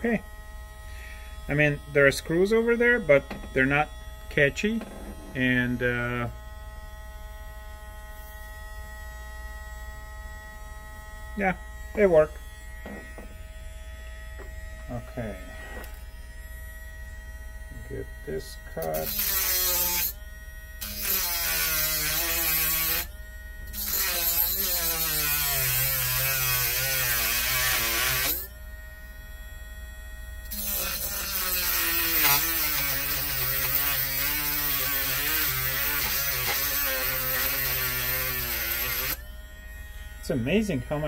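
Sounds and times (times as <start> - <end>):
rotary tool motor whining: 18.8 - 20.2, 20.8 - 28.6, 30.4 - 41.0.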